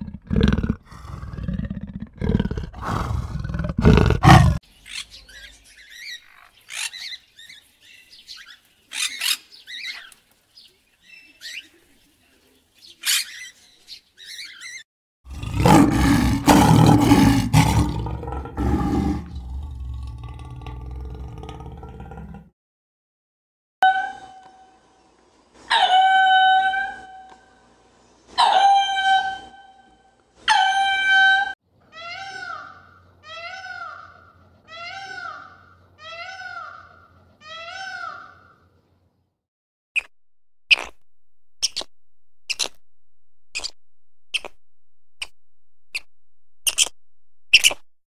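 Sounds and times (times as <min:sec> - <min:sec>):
lemur calling: 0:41.6 - 0:41.9, 0:42.5 - 0:42.8, 0:43.5 - 0:44.6, 0:45.9 - 0:47.8.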